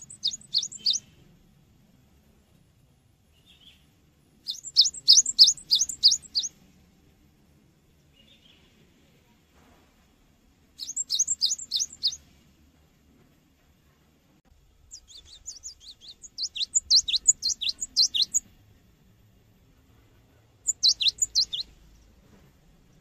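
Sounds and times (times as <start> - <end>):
bird singing high repeated notes: 0.0 - 1.2, 4.5 - 6.5, 10.8 - 12.2, 14.9 - 18.5, 20.6 - 22.0.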